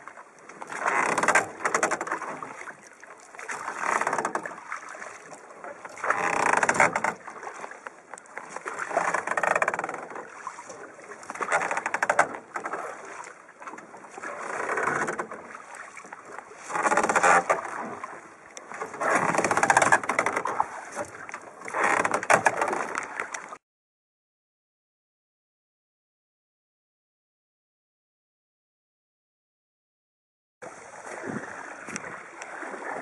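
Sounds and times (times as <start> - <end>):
water splashing along boat hull: 0.0 - 23.6, 30.6 - 33.0.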